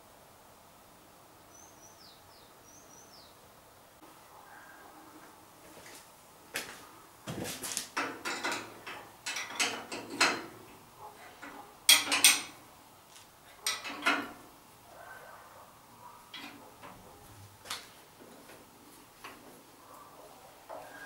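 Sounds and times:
wrench clicking and clanking: 8.0 - 10.6, 11.4 - 12.6, 13.6 - 14.4.

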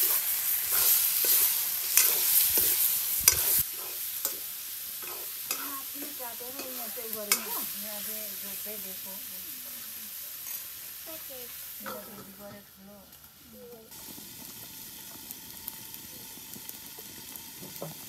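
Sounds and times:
metal ladle scraping pan: 0.0 - 7.8
curry sizzling in wok: 0.0 - 18.0.

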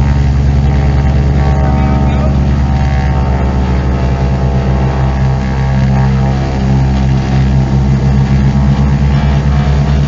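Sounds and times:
aircraft piston engines humming: 0.0 - 10.0.

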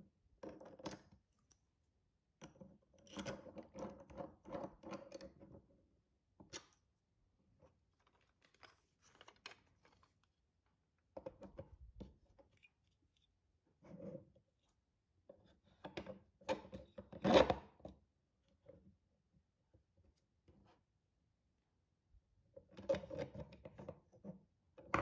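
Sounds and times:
plastic parts clicking and clattering: 8.0 - 10.3.

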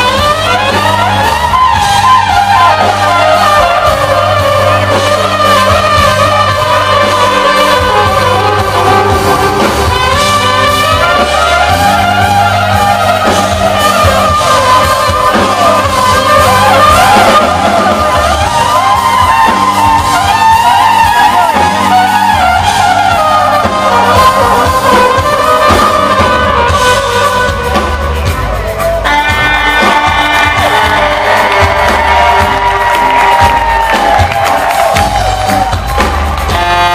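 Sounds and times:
funk band bass and drums: 0.0 - 36.9
trumpet solo: 0.0 - 36.9.

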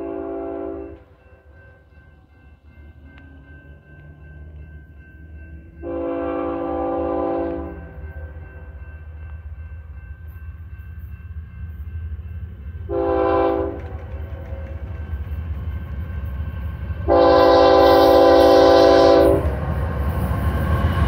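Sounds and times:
train air horn blasts: 0.0 - 1.0, 5.8 - 7.9, 12.9 - 14.0, 17.0 - 19.6.

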